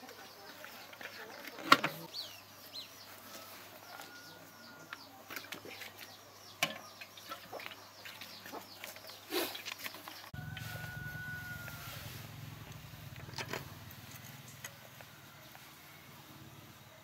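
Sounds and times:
small birds chirping: 0.0 - 17.0
chickens clucking: 2.8 - 15.7.

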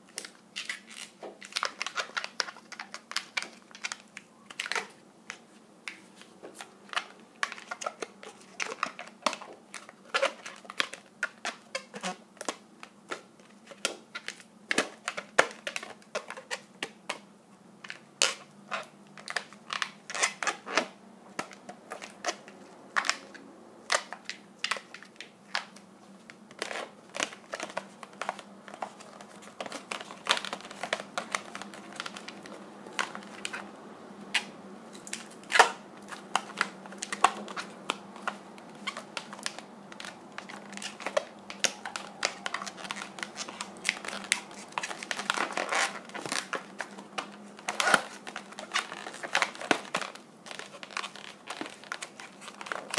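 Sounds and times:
balloons squeaking and creaking: 0.0 - 5.0, 6.6 - 12.3, 18.2 - 22.4, 26.5 - 33.7, 34.3 - 52.9.

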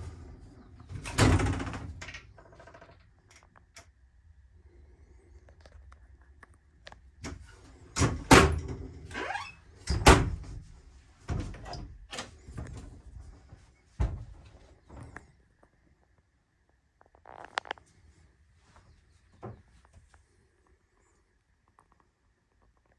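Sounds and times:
knocks and thuds: 14.0 - 14.5.

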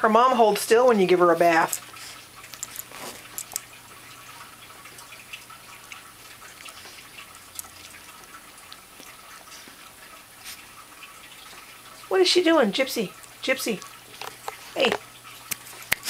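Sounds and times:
dog licking and smacking: 1.3 - 12.1.

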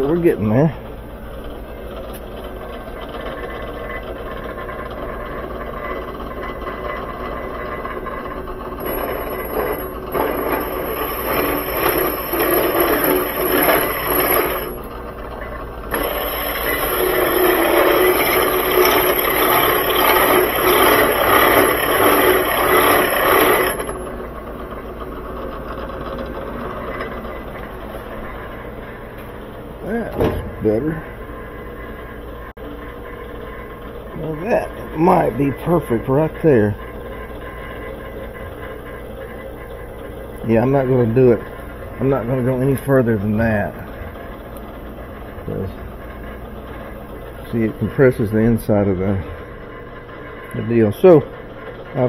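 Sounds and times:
drill press motor hum: 0.0 - 52.0
harsh metal cutting noise: 3.3 - 28.9.

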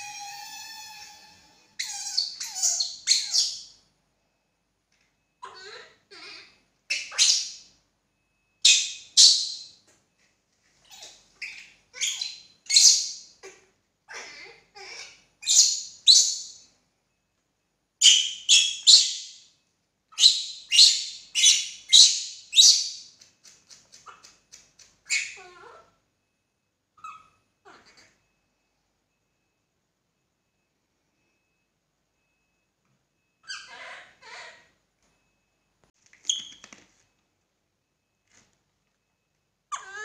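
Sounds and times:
baby monkey shrill cries: 0.0 - 3.6, 10.9 - 16.5, 33.4 - 34.6, 39.7 - 40.0.

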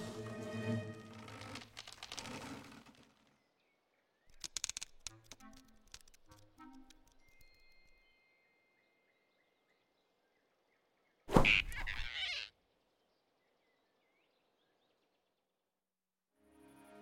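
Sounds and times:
cartoon whoosh and thump: 11.3 - 12.2
cartoon squeak: 11.3 - 12.5.

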